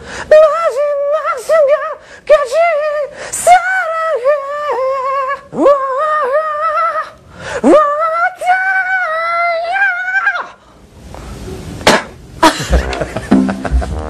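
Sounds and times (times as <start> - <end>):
high-pitched singing voice: 0.3 - 10.5
sharp slaps: 11.8 - 12.2
laughter and commotion: 12.4 - 14.0.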